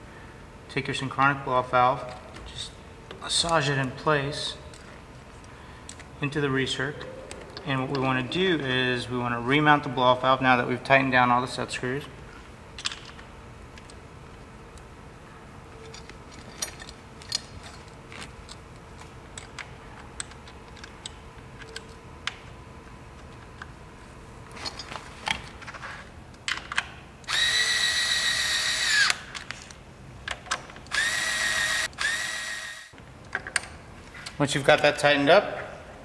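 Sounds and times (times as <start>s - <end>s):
clicks and knocks of parts handled: 12.8s - 14.0s, 15.7s - 22.4s, 24.5s - 27.0s, 29.0s - 31.1s
cordless power driver running: 27.3s - 29.2s, 30.9s - 33.0s.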